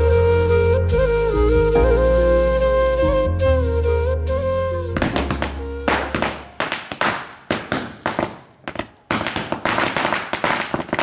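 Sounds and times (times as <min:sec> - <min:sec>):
firecrackers banging: 0:05.0 - 0:11.0.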